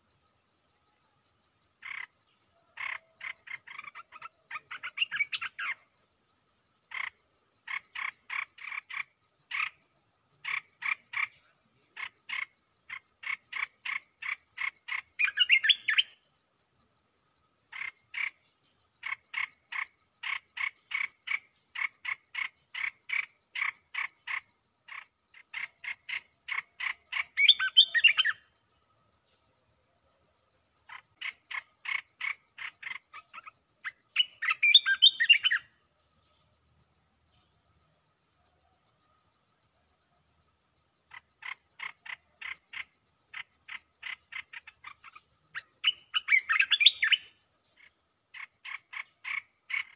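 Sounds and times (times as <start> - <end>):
bird warbling song phrases: 1.8 - 5.8, 14.6 - 16.2, 25.5 - 28.4, 30.9 - 35.7, 42.4 - 47.3.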